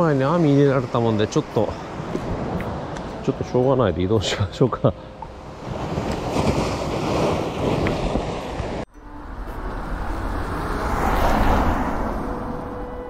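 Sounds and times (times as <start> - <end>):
surf washing against seawall: 5.4 - 8.8
rushing noise: 8.8 - 13.0.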